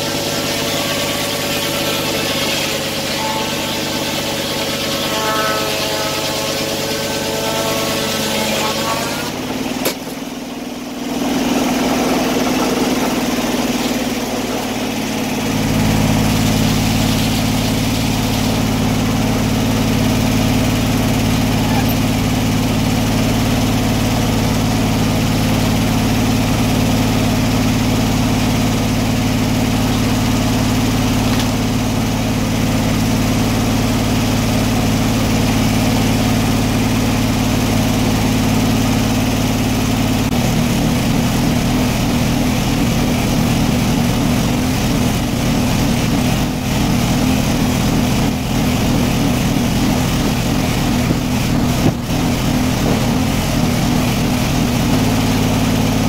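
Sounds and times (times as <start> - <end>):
sawmill engine running: 0.0 - 56.0.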